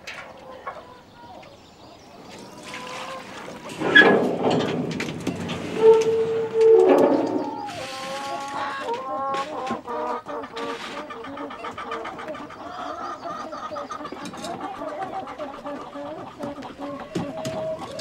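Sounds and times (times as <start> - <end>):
hens clucking: 0.0 - 18.0.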